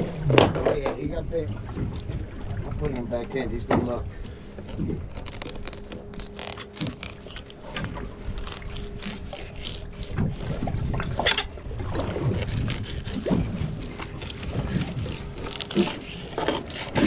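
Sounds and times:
water sloshing against boat hull: 0.0s - 17.0s.

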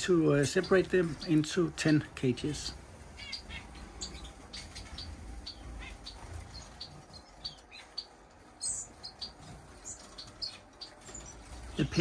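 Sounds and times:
finches chirping: 0.0s - 12.0s.

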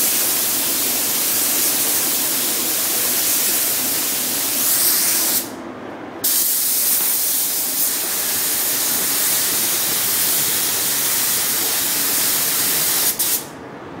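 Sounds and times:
paint spray gun hissing: 6.2s - 13.5s.

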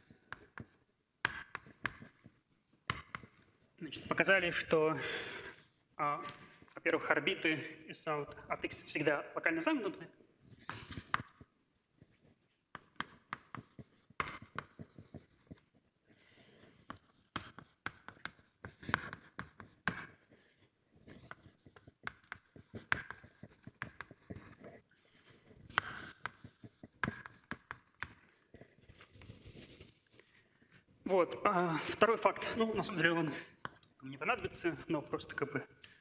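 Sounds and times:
writing on a board: 0.0s - 3.5s, 10.6s - 30.0s.

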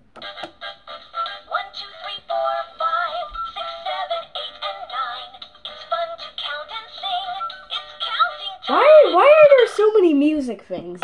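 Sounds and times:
toy playing children's song: 0.2s - 9.8s.

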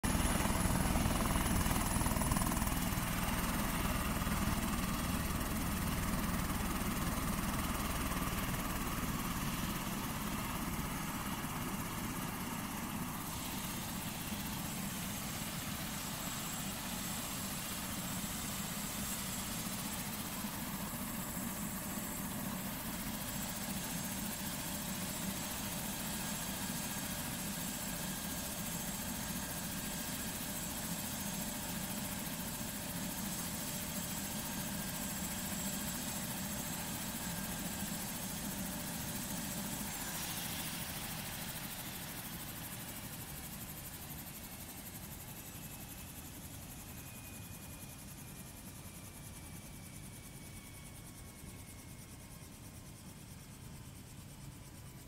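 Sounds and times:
helicopter turbine whine: 0.0s - 55.0s
low rotor and engine noise: 0.0s - 55.0s.

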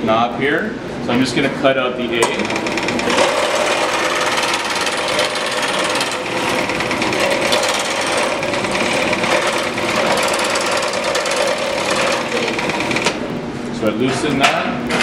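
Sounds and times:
scroll saw cutting wood: 2.4s - 13.2s.

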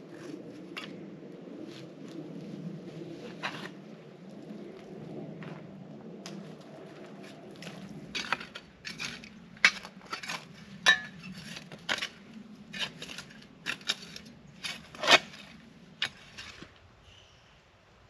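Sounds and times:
shovel scraping through ash: 7.6s - 16.7s.

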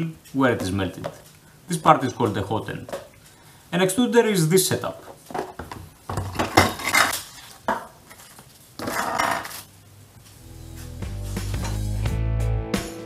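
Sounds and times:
music: 10.3s - 13.0s.

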